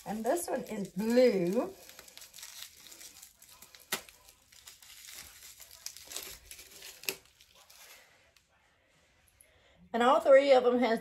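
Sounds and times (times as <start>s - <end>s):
plastic wrapping crinkling: 0.0s - 8.5s.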